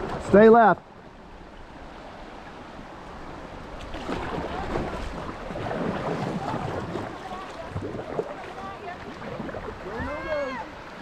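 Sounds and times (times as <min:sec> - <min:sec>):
river water gurgling over rocks: 0:02.9 - 0:11.0
water lapping against kayak hull: 0:03.0 - 0:11.0.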